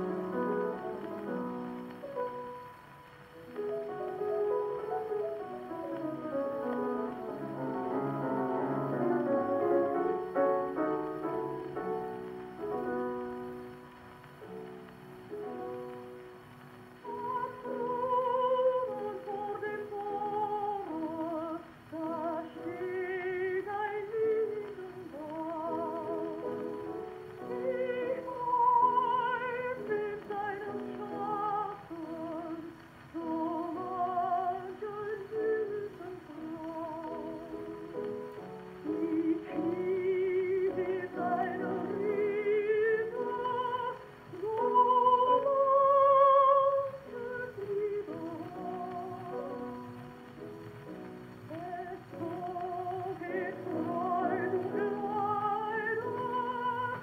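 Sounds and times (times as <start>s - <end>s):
piano accompaniment: 0.0s - 57.0s
woman singing with vibrato: 17.0s - 37.9s, 38.7s - 50.2s, 51.4s - 57.0s.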